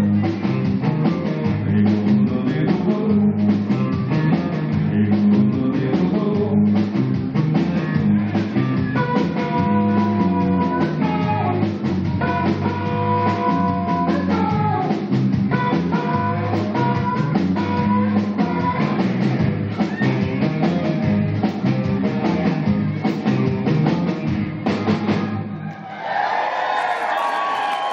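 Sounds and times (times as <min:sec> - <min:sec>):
drum kit: 0:00.0 - 0:25.6
electric guitars: 0:00.0 - 0:25.6.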